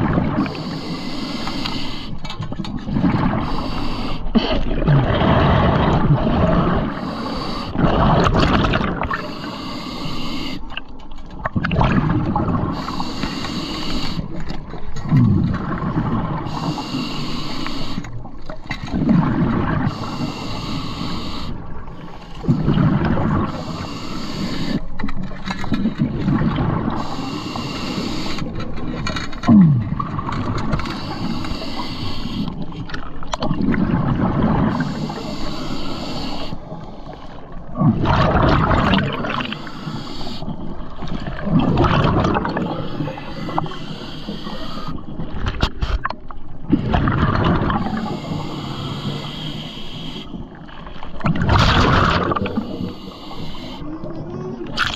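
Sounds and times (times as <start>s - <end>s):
scuba regulator inhale hiss: 0.5s - 2.2s, 3.4s - 4.4s, 6.9s - 7.8s, 9.2s - 10.6s, 12.7s - 14.4s, 16.5s - 18.1s, 19.9s - 21.6s, 23.5s - 24.9s, 27.0s - 28.5s, 30.8s - 32.6s, 34.7s - 37.4s, 39.4s - 40.7s, 42.7s - 45.1s, 47.8s - 50.4s, 52.4s - 53.9s
gush of exhaled bubbles: 2.8s - 7.0s, 7.7s - 9.3s, 11.4s - 12.8s, 18.9s - 19.9s, 22.4s - 23.6s, 26.0s - 27.1s, 33.4s - 34.9s, 37.6s - 39.7s, 40.6s - 43.8s, 46.7s - 48.4s, 50.8s - 53.0s.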